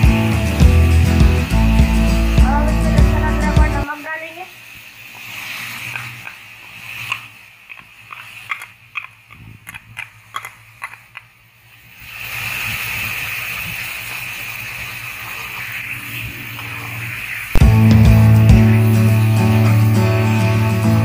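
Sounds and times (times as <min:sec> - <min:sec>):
chicken frying in hot oil: 0:00.0 - 0:21.0.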